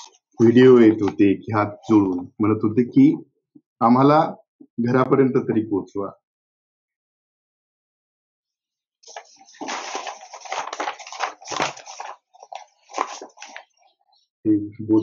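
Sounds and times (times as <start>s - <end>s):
paper rustling and crinkling: 0.0s - 1.2s, 9.0s - 14.2s.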